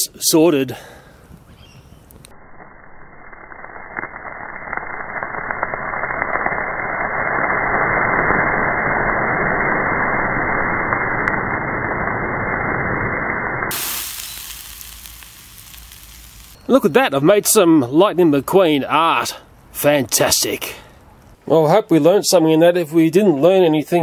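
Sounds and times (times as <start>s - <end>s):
fire extinguisher hissing: 13.7s - 16.6s.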